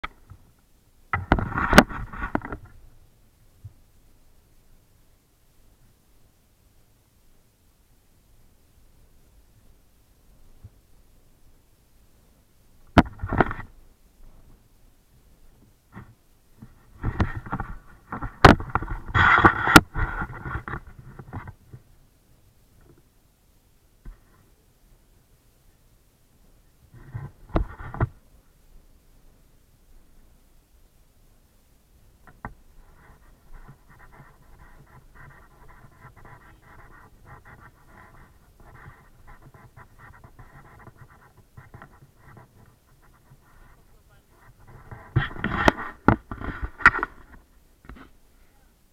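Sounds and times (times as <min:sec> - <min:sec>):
handling noise rubbing microphone: 0:01.2 - 0:02.9, 0:15.5 - 0:21.9, 0:32.2 - 0:48.2.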